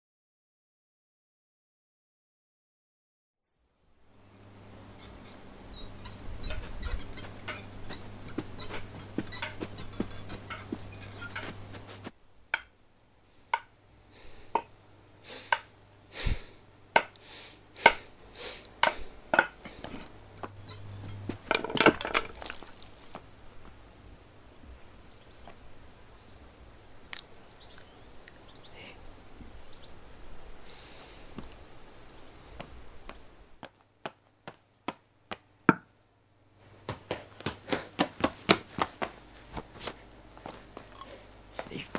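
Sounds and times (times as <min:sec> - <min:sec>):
bird chirping: 0:05.0 - 0:13.6, 0:14.6 - 0:14.9, 0:19.2 - 0:21.7, 0:22.4 - 0:30.8, 0:31.4 - 0:32.3
pots and utensils clattering: 0:06.4 - 0:11.6, 0:21.4 - 0:23.1.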